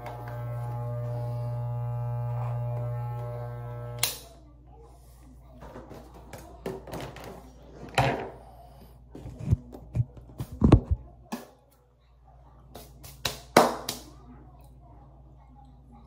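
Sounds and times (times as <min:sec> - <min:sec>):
faint low hum: 0:00.0 - 0:06.6.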